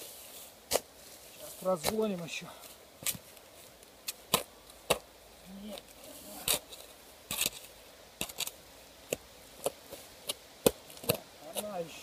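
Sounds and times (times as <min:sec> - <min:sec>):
shovel digging into stony soil: 0:00.0 - 0:00.9, 0:06.1 - 0:11.8.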